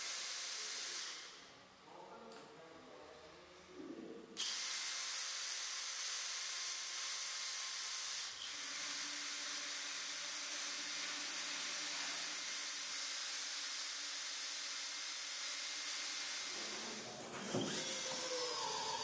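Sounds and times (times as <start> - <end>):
drill drilling into steel: 0.0 - 1.4, 4.4 - 19.0.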